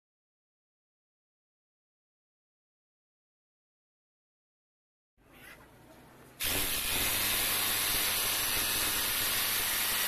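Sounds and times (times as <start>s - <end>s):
rotary hammer drill into concrete: 6.4s - 10.0s.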